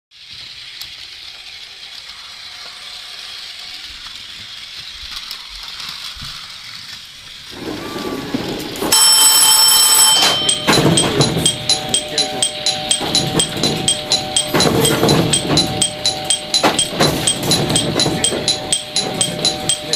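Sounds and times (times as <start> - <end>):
electric train slowing to a stop: 0.2 - 19.9
high repeating chime: 8.9 - 19.9
warning alarm ringing: 8.9 - 19.9.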